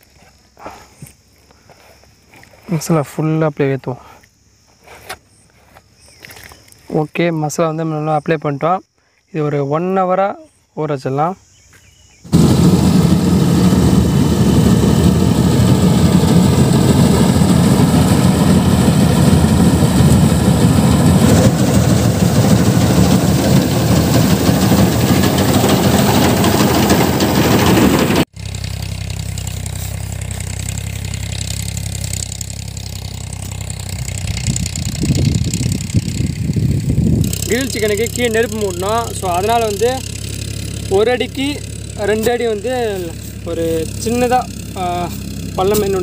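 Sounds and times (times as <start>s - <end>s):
combine harvester engine running: 12.3s - 46.0s.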